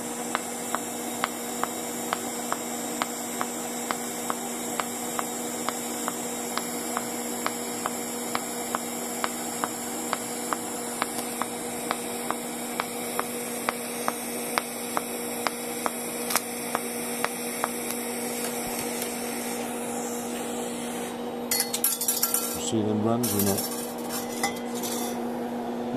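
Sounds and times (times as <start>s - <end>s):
welding arc humming and ticking: 0.0s - 25.2s.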